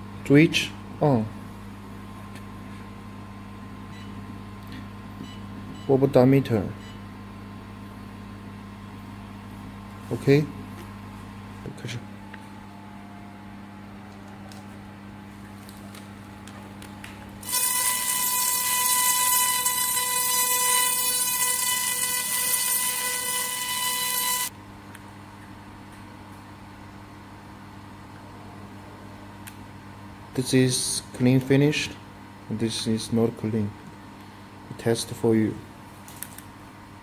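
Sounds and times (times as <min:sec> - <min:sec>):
low machine hum: 0:00.0 - 0:37.0
laser cleaner hissing and whining: 0:17.4 - 0:24.5.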